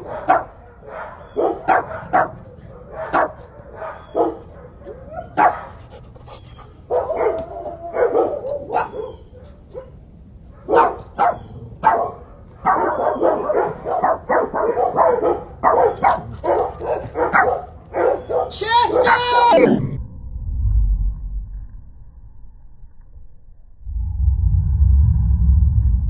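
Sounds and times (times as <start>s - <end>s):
dog barking: 0.0s - 5.8s, 6.9s - 19.5s
dog drawn-out cry: 10.6s - 19.8s.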